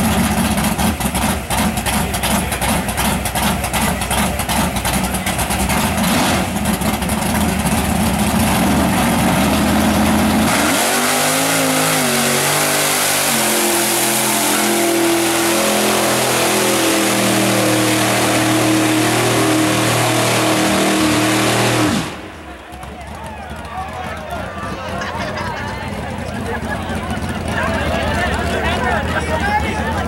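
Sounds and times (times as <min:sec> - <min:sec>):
truck engine revving: 0:00.0 - 0:30.0
thrown mud rushing: 0:08.4 - 0:22.5.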